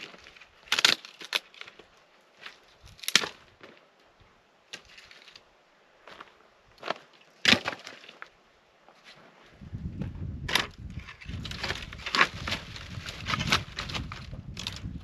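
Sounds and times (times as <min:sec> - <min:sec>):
dry wood cracking and snapping: 0:00.0 - 0:03.4, 0:07.4 - 0:08.3, 0:10.5 - 0:15.0.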